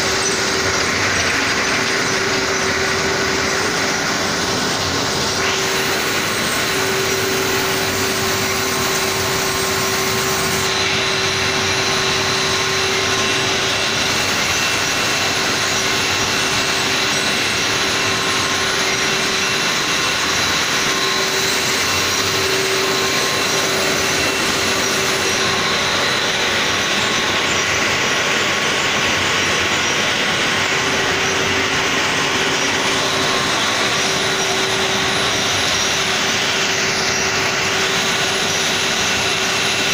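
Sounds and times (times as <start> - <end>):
factory machinery drone: 0.0 - 39.9.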